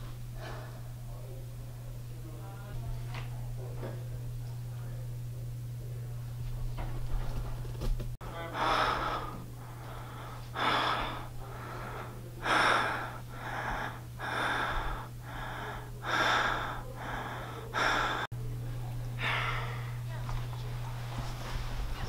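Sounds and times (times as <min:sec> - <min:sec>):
steady low hum: 0:00.0 - 0:22.0
person breathing heavily: 0:00.3 - 0:01.0, 0:08.3 - 0:18.3, 0:19.2 - 0:20.1.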